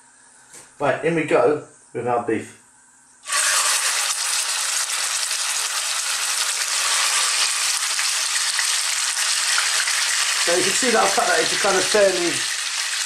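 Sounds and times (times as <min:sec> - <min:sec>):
beef sizzling in hot oil: 0:03.2 - 0:13.0.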